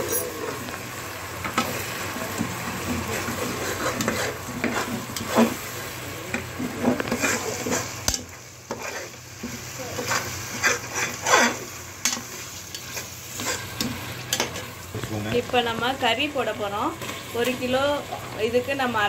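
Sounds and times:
food sizzling in oil: 0.0s - 19.0s
spatula scraping a pot: 2.8s - 5.7s, 6.6s - 14.7s.

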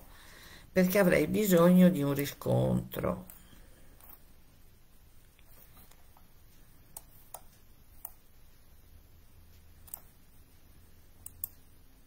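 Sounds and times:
small sharp clicks: 11.2s - 11.7s.

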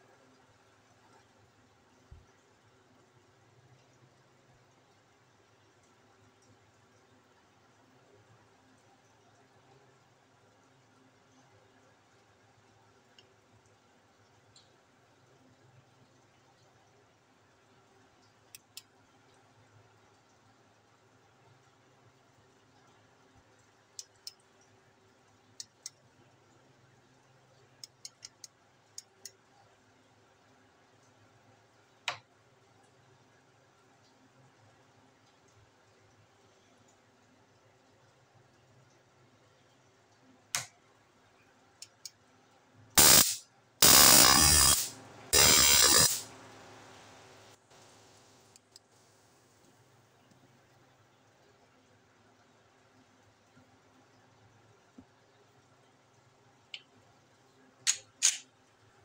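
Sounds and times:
sharp click: 43.0s - 46.3s, 57.9s - 58.4s
stun baton arcing: 43.0s - 46.3s.

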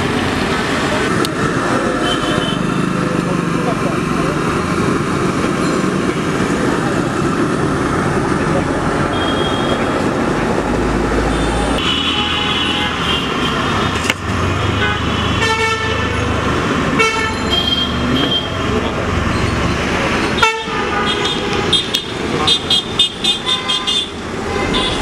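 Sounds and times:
rumble of engines: 0.0s - 11.9s, 12.5s - 25.0s
vehicle horns honking: 2.0s - 2.8s, 9.1s - 9.9s, 11.3s - 13.8s, 14.7s - 16.3s, 17.0s - 18.7s, 20.3s - 25.0s.

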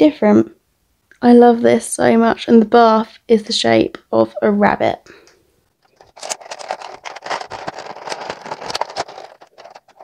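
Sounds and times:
plastic packaging crinkling: 5.8s - 10.0s.

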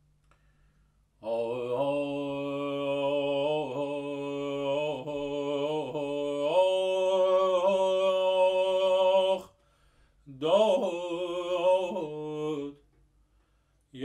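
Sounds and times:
man singing unaccompanied: 1.2s - 9.6s, 10.3s - 12.8s.

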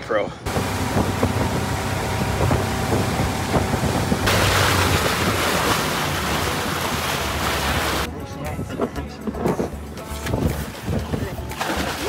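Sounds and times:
boat motor running: 0.4s - 8.1s
water rushing past hull: 0.5s - 8.1s, 10.2s - 12.0s
wind on microphone: 0.5s - 11.5s.

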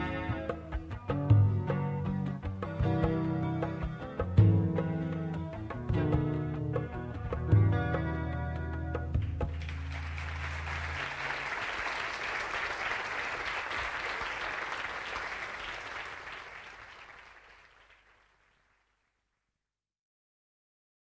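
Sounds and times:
audience applauding: 9.5s - 19.0s.

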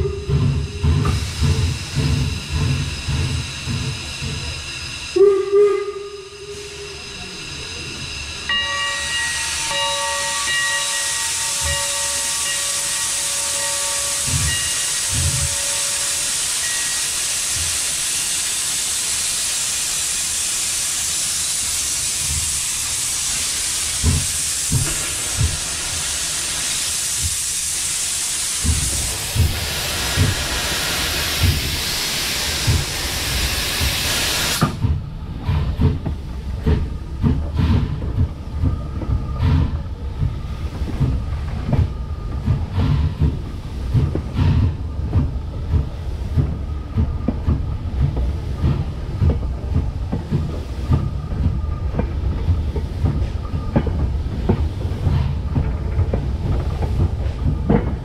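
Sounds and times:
steam hissing: 0.0s - 58.0s
train wheels knocking over rail joints: 9.7s - 16.0s, 23.9s - 26.1s, 28.6s - 58.0s.

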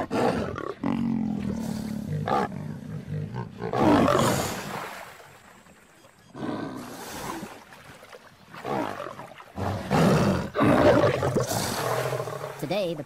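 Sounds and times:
lion roaring: 0.0s - 4.6s, 8.6s - 12.6s.

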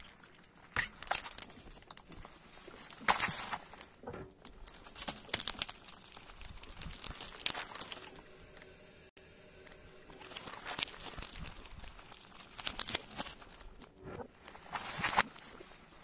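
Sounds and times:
plastic crinkling and crackling: 0.0s - 8.8s, 9.7s - 16.0s.

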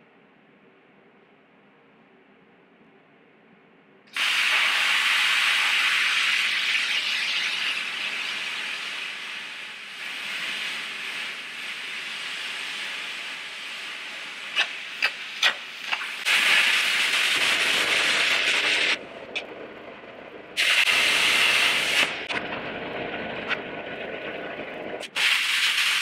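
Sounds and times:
plasma cutter hissing: 4.1s - 19.4s, 20.6s - 22.4s, 25.0s - 26.0s
sharp pops: 14.4s - 19.5s.

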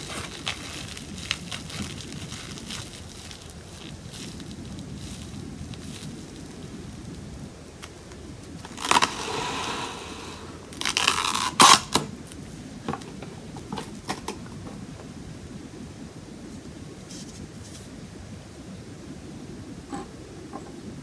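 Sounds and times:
plastic film pulled off roll: 0.0s - 6.6s, 7.8s - 12.4s
plastic film crinkling: 0.0s - 9.7s, 10.7s - 12.4s
plastic film tearing snap: 10.7s - 12.1s.

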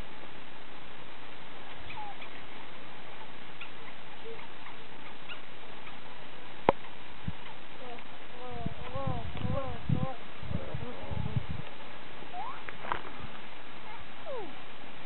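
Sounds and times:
steady hiss: 0.0s - 15.0s
baboons chirping: 1.7s - 2.5s, 3.6s - 6.1s, 12.3s - 12.7s.

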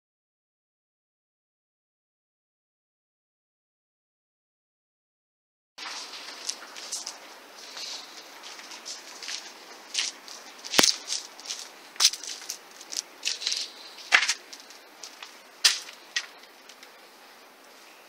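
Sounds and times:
footsteps crunching on debris: 5.8s - 17.0s.

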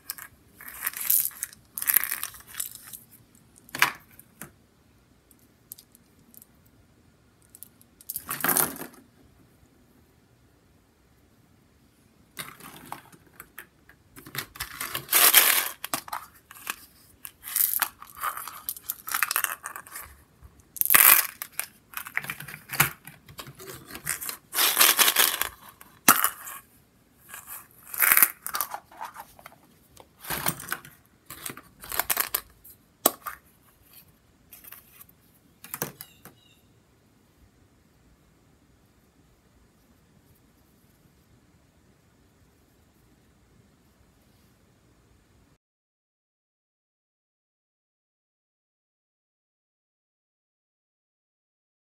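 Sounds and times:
plastic toys crackling and scraping: 0.0s - 4.4s, 12.4s - 36.2s.

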